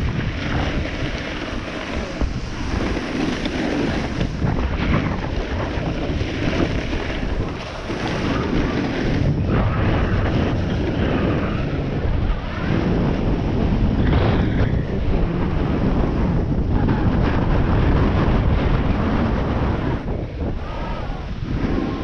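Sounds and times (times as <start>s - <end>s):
snowboard scraping over snow: 0.0s - 22.0s
wind rushing over microphone: 0.0s - 22.0s.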